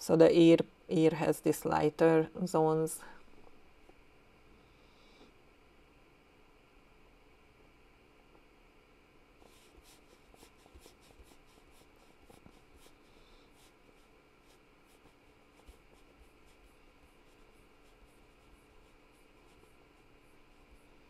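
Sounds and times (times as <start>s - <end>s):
scratching on paper: 9.4s - 21.0s.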